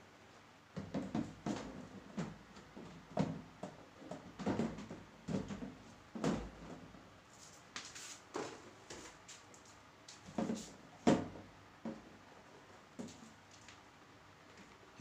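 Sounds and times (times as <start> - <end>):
plastic knocks and clacks: 0.8 - 6.8.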